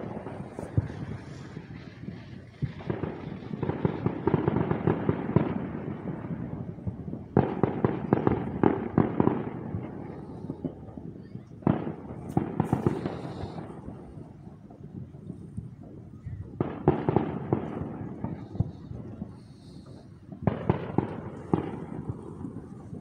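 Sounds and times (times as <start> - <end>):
fireworks cracking and popping: 0.0 - 23.0.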